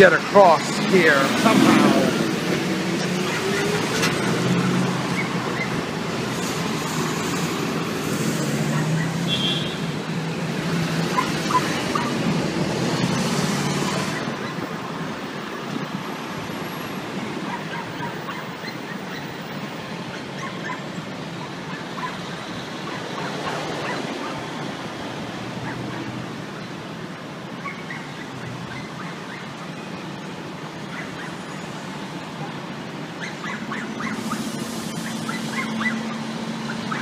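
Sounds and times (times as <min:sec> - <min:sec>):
vehicle passing: 0:00.0 - 0:14.4
traffic hum: 0:00.0 - 0:37.0.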